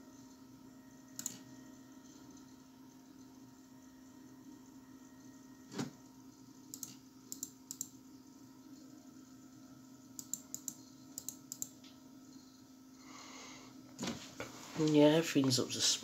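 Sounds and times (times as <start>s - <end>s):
steady low hum: 0.0s - 16.0s
computer keys and mouse clicks: 1.2s - 1.4s, 6.7s - 8.0s, 10.2s - 11.9s.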